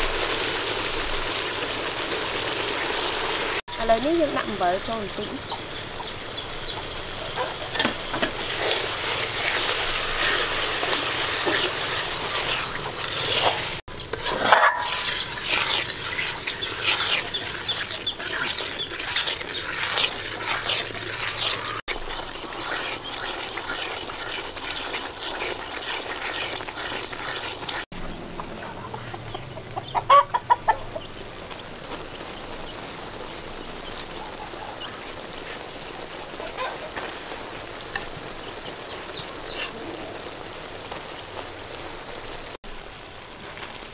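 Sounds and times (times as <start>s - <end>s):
chickens clucking: 4.6s - 9.4s, 11.4s - 21.8s, 26.5s - 31.4s, 33.9s - 37.2s
liquid bubbling and crackling: 4.7s - 43.9s
metal ladle stirring: 7.7s - 27.8s.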